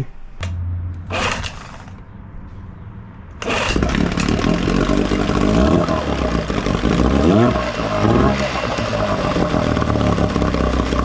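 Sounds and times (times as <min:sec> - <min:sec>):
outboard motor starting and running: 0:01.1 - 0:02.0, 0:03.4 - 0:11.0.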